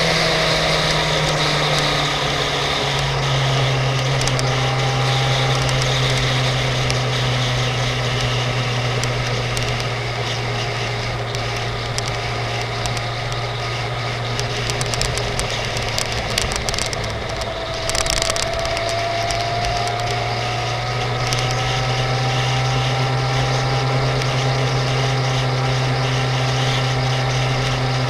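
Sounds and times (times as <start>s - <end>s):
faint whine: 0.0s - 28.0s
motorcycle engine cruising: 0.0s - 28.0s
light ticks: 11.3s - 20.3s.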